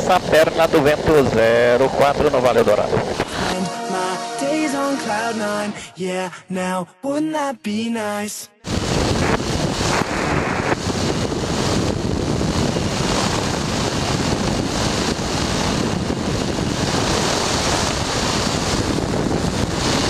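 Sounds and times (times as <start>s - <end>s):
wind buffeting microphone: 0.0s - 3.4s, 8.7s - 20.0s.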